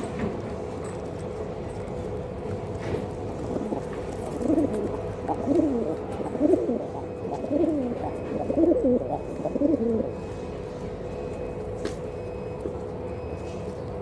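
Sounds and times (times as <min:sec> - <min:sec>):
pigeons cooing: 0:03.2 - 0:10.5.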